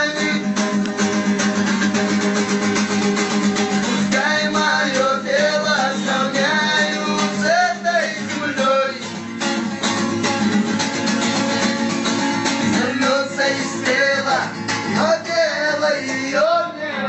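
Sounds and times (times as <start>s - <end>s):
man singing: 0.0s - 0.7s, 4.1s - 9.2s, 12.6s - 17.0s
strummed acoustic guitar: 0.0s - 17.0s.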